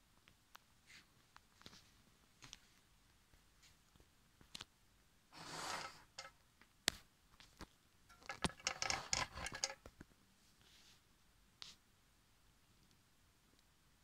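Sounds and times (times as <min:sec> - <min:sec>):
projector clicks and scrapes: 0:05.4 - 0:06.4, 0:08.1 - 0:09.9
projector parts brushing: 0:05.4 - 0:06.4, 0:08.1 - 0:09.9.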